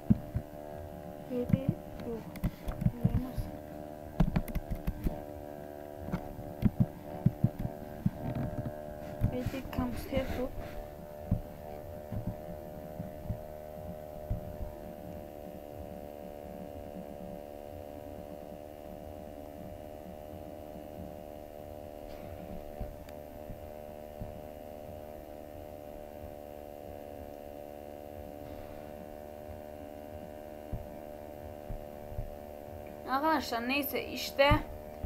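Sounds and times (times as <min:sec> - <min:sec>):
electrical hum: 0:00.0 - 0:35.0
low thumps: 0:06.1 - 0:13.5, 0:30.7 - 0:32.4.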